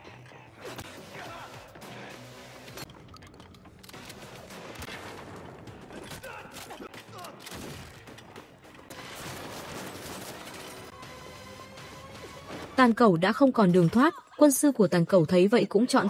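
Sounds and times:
rapid gunfire and impacts: 3.8 - 12.8.

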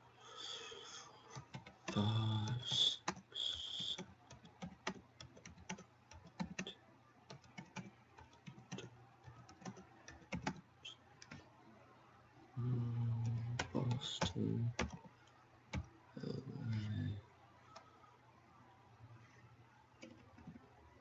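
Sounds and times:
keyboard typing: 1.3 - 6.7, 7.3 - 11.5, 13.2 - 15.9, 19.9 - 20.8.

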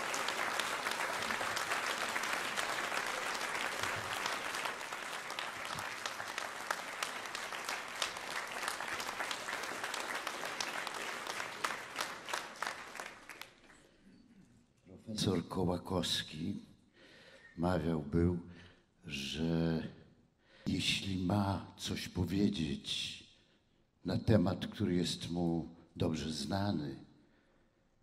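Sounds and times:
large audience applauding: 0.0 - 13.9.

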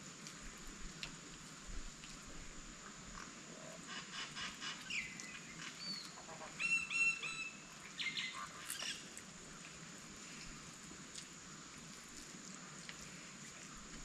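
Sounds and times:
birds calling: 3.9 - 9.1.

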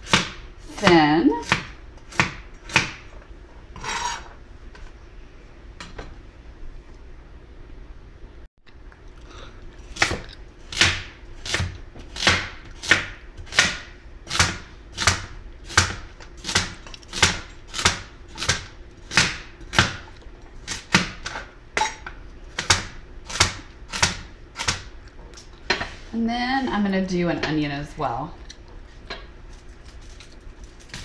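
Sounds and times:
knife chopping carrots on board: 0.0 - 3.1, 10.0 - 20.0, 20.7 - 24.9.

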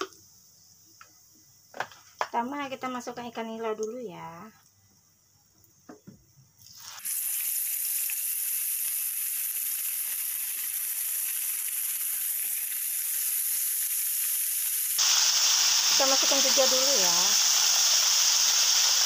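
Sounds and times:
fish sizzling in hot oil: 6.6 - 19.0.

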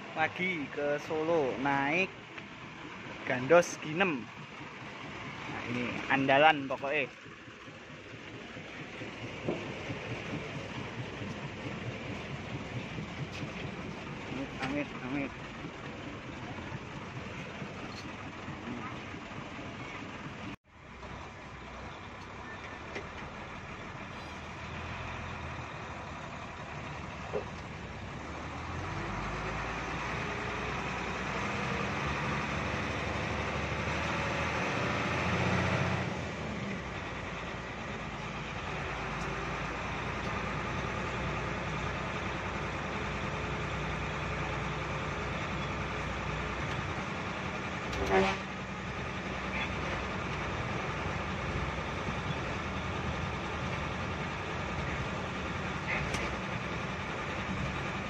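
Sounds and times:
bus diesel engine revving: 0.0 - 58.0
short horn toot: 48.0 - 48.5.

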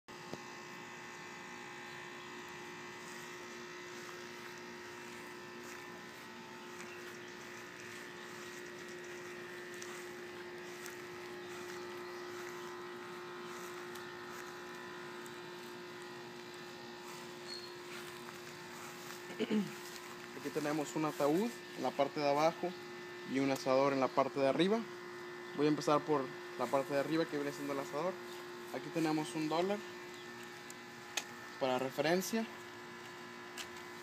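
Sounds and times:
steady mechanical hum: 0.1 - 34.0.

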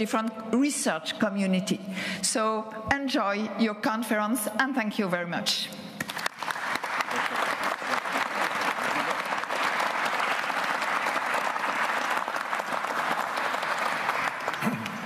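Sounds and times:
audience applauding: 6.0 - 15.0.

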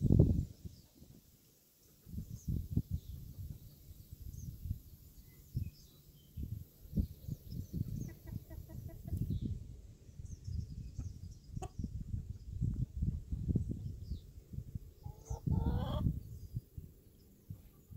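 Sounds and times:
hens and rooster clucking: 7.7 - 9.3, 15.0 - 16.2.

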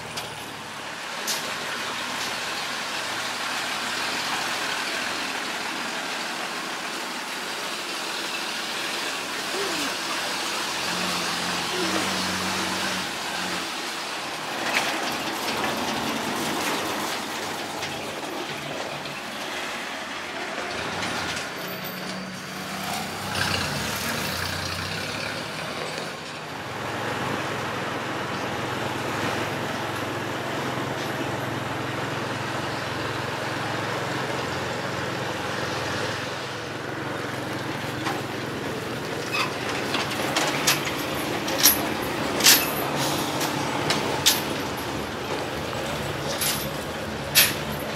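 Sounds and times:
truck engine driving by: 0.0 - 47.9.

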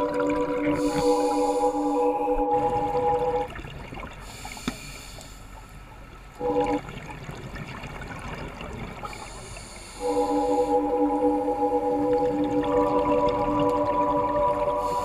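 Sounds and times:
underwater bubbles gurgling: 0.0 - 1.7, 6.3 - 15.0
steady humming tone: 0.0 - 7.0, 9.0 - 15.0.

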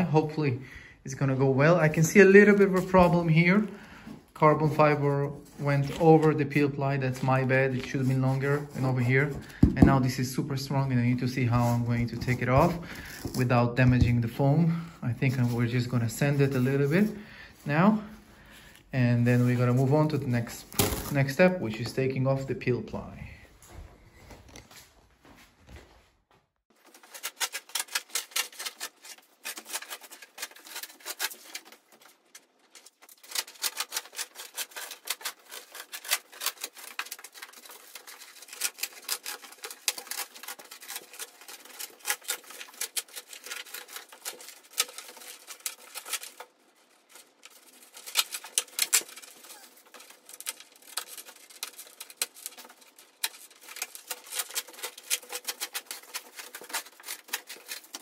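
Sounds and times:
peel ply tearing crackle: 26.7 - 58.0.

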